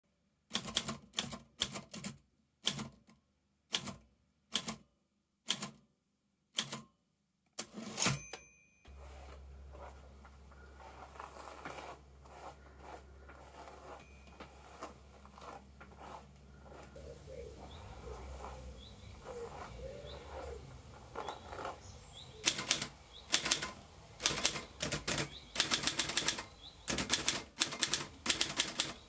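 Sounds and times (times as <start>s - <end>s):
typewriter keystrokes: 0.5s - 4.8s, 5.5s - 5.8s, 6.6s - 6.9s, 22.4s - 29.0s
typewriter bell ring: 7.8s - 9.0s, 13.8s - 14.9s
faint outdoor background noise: 8.1s - 29.0s.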